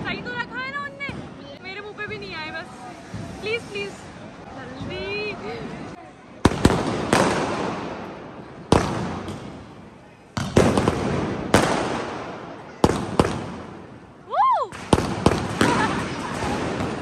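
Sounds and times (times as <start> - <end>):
fireworks bangs with crackle: 6.4 - 17.0.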